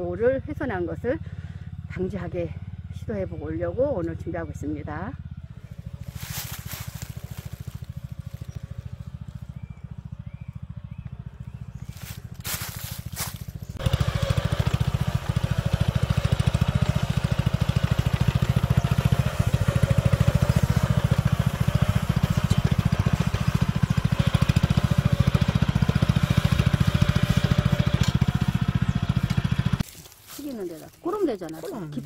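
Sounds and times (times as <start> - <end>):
small engine running: 0.0 - 32.0.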